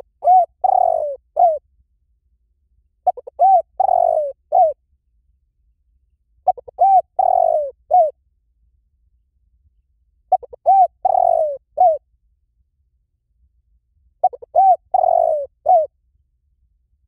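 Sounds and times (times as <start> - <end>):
dove cooing: 0.0 - 1.6, 3.0 - 4.8, 6.4 - 8.2, 10.3 - 12.0, 14.2 - 15.9.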